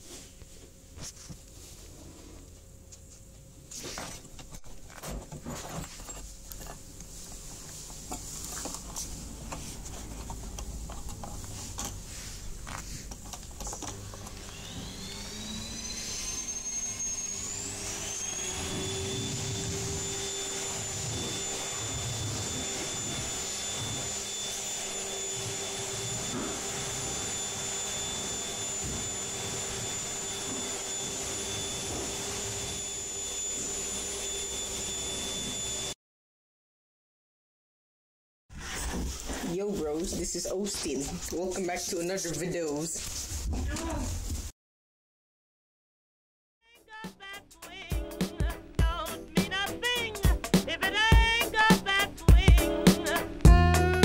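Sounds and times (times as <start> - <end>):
vacuum cleaner motor whine: 0.0 - 36.0.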